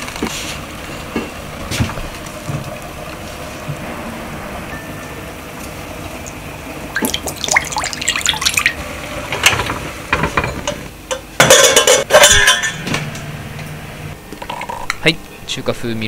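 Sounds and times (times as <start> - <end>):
metal pot clattering on table: 9.4 - 12.8.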